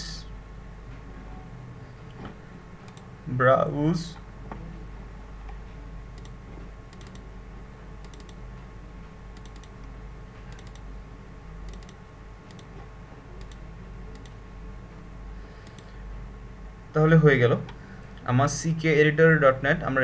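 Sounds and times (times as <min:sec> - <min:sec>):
low hum and hiss: 0:00.0 - 0:20.0
computer mouse clicking: 0:02.9 - 0:03.1, 0:06.1 - 0:07.3, 0:08.0 - 0:08.4, 0:09.4 - 0:09.9, 0:10.5 - 0:10.9, 0:11.6 - 0:12.8, 0:13.4 - 0:14.4, 0:15.6 - 0:15.9.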